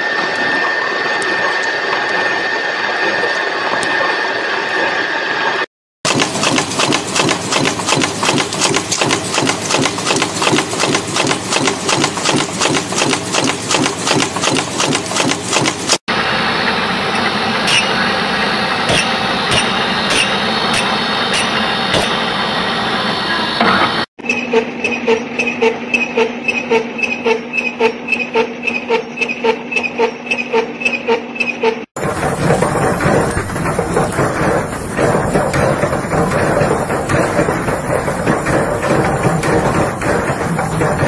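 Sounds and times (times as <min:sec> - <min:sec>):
metalworking machine running: 0:00.0 - 0:41.0
sharp machine clicks: 0:06.1 - 0:16.0
power press stamping metal: 0:17.1 - 0:18.2, 0:18.8 - 0:22.4, 0:32.0 - 0:41.0.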